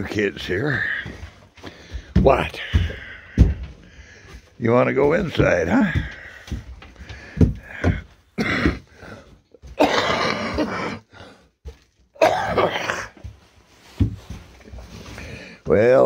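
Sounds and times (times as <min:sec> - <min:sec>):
man coughing: 0:08.4 - 0:08.9, 0:09.7 - 0:11.1, 0:12.2 - 0:13.3.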